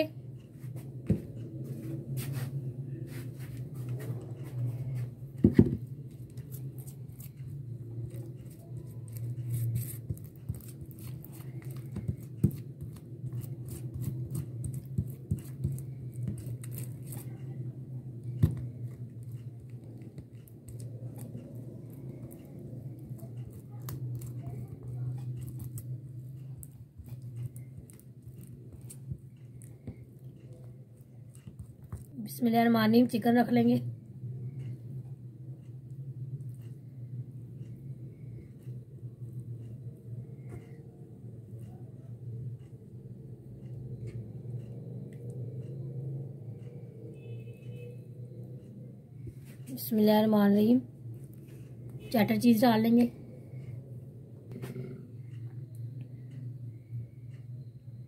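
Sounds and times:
steady low hum: 0.0s - 58.0s
spoon scraping sauce: 6.2s - 17.6s, 22.9s - 29.8s.

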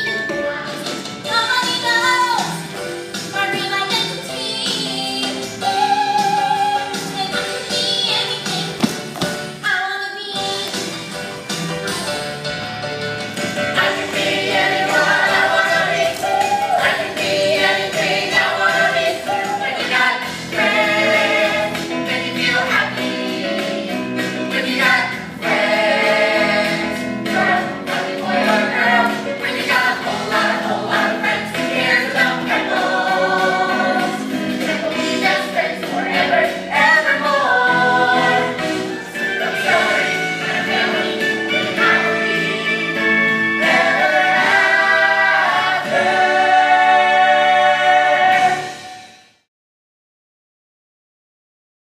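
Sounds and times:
instrumental accompaniment: 2.6s - 9.7s, 10.4s - 49.2s
group singing a show tune: 13.4s - 49.1s.

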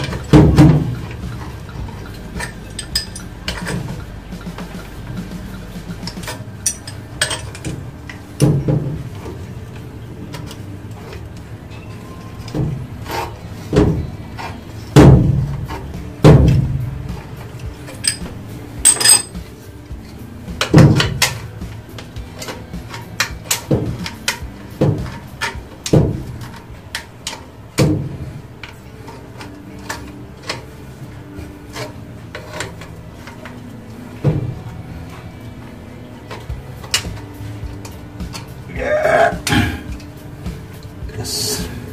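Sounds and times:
wrench clanking on metal pipe: 0.0s - 5.3s, 6.0s - 9.1s, 17.8s - 19.5s.

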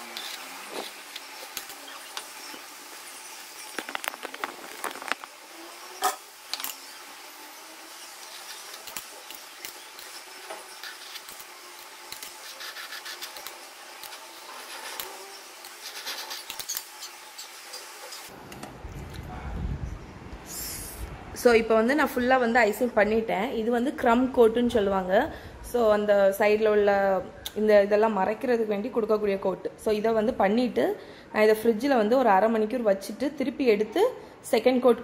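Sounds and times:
knife spreading cream: 12.1s - 16.8s.

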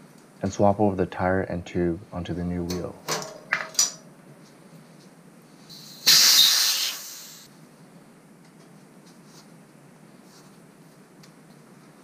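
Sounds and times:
air hissing from tire valve: 5.6s - 7.5s.

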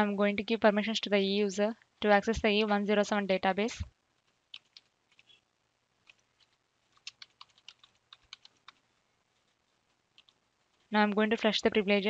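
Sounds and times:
typing on computer keyboard: 4.5s - 5.4s, 6.0s - 8.8s, 10.2s - 10.4s.

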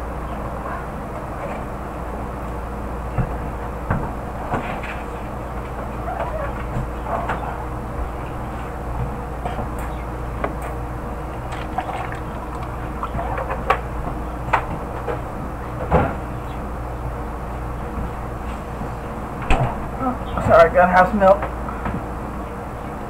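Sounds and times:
refrigerator low hum: 0.0s - 23.0s
bottles knocking and clinking: 11.5s - 13.2s.

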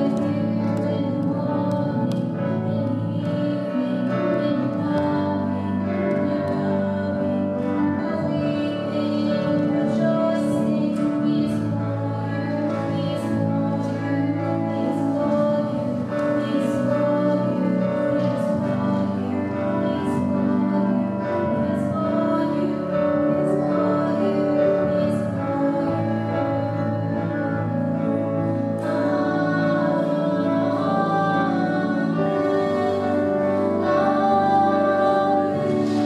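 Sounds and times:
woman singing: 0.0s - 36.0s
worship band playing: 0.0s - 36.0s.

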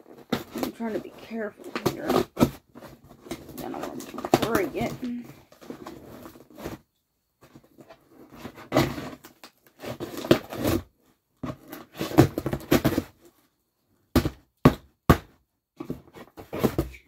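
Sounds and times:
knife cutting packing tape: 8.4s - 10.9s.

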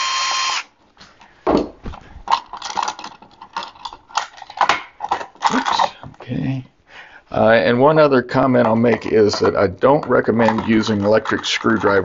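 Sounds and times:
cordless drill whirring: 0.0s - 0.7s
drill thumping on wooden bench: 1.4s - 2.0s.

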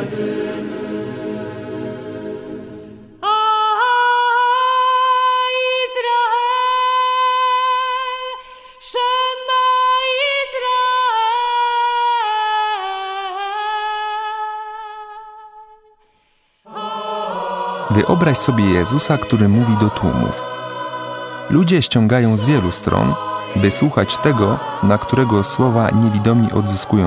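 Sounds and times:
woman singing wordless melody: 3.2s - 16.0s
low sung chant: 16.7s - 27.0s.

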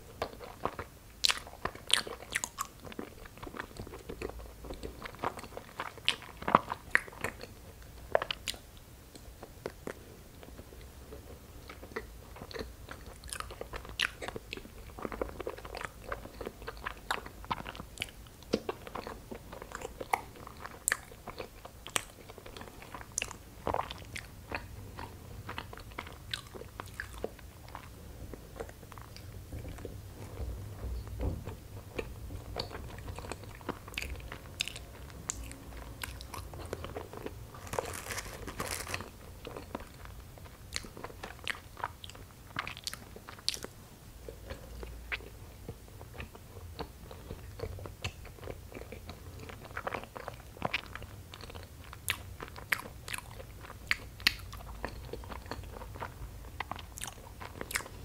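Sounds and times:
wet chewing clicks and squishes: 0.2s - 7.5s, 11.7s - 27.9s, 32.0s - 43.7s, 46.1s - 58.0s.

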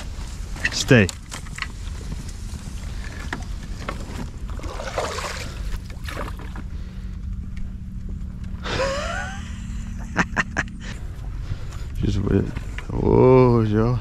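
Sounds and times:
steady low rumble: 0.0s - 14.0s
water sloshing and splashing: 1.6s - 6.7s.

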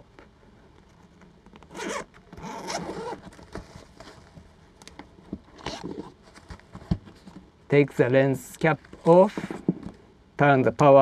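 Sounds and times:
zipper pulled open: 1.7s - 3.2s, 5.6s - 6.2s
fabric rubbing: 1.8s - 3.2s.

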